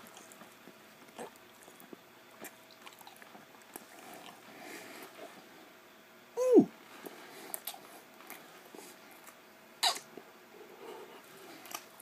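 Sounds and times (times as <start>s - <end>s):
man's falling vocal sound: 6.4s - 6.7s.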